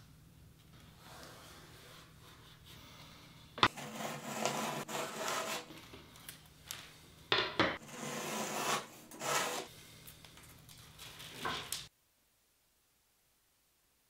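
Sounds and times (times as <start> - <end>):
utility knife scraping wood: 3.6 - 5.7, 7.8 - 9.7.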